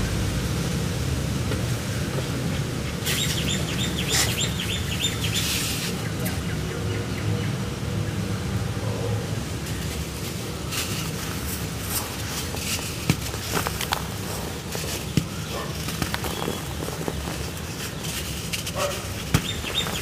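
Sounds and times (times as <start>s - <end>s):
low outdoor rumble and hiss: 0.0s - 20.0s
small bird chirping: 19.1s - 20.0s.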